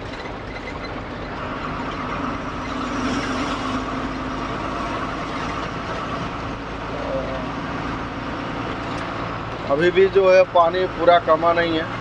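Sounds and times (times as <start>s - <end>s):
road noise: 0.0s - 12.0s
truck engine drone: 0.0s - 12.0s.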